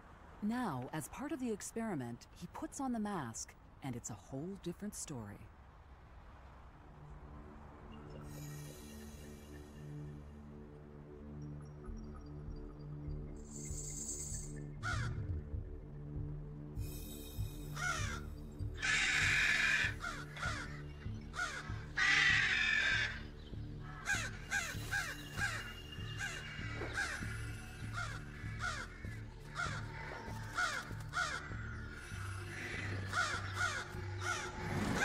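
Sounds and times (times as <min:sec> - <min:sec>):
background music: 0:06.2 - 0:35.0
crows cawing harshly: 0:14.8 - 0:15.2, 0:17.8 - 0:18.2, 0:18.8 - 0:35.0.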